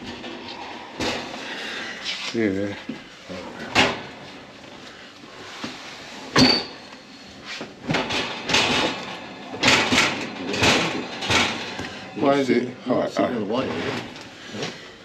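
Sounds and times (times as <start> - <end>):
oven casing knocking and scraping: 7.7 - 12.0.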